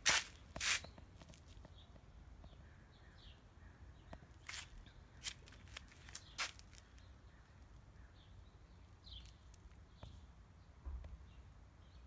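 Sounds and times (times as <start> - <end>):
soft footsteps on concrete: 0.0 - 2.7, 4.1 - 7.2.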